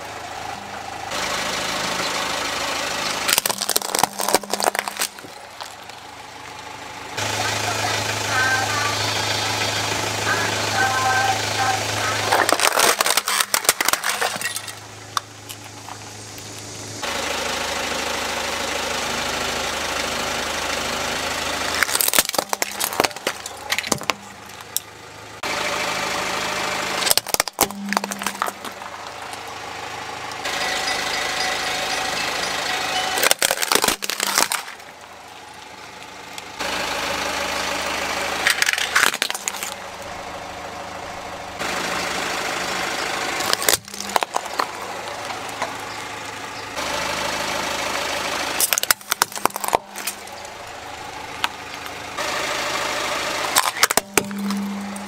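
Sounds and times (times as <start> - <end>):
car engine idling: 0.0 - 55.0
plastic cracking and snapping: 3.3 - 6.0, 12.3 - 15.7, 21.8 - 24.9, 27.0 - 29.4, 33.2 - 34.9, 38.5 - 39.8, 43.4 - 45.4, 48.6 - 50.3.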